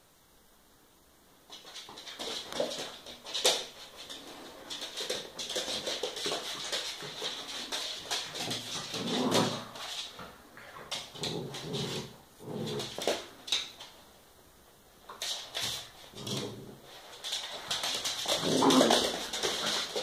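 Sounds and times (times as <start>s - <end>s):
claws scrabbling on wooden floor: 1.5s - 14.0s, 15.0s - 20.0s
dogs growling: 8.4s - 9.8s, 10.6s - 13.3s, 16.1s - 16.9s, 18.3s - 20.0s.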